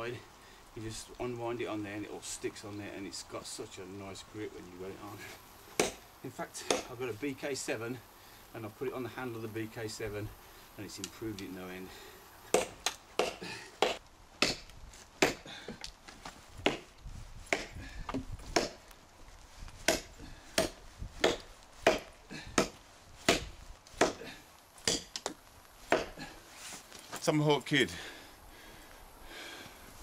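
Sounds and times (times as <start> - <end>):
tomahawk chopping log: 5.8 - 6.0, 6.6 - 7.0, 12.5 - 15.8, 16.6 - 19.0, 19.8 - 26.3.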